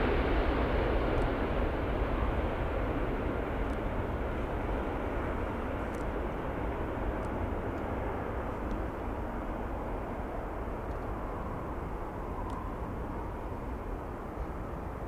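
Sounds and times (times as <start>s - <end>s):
jet airliner engines rumbling: 0.0s - 15.0s.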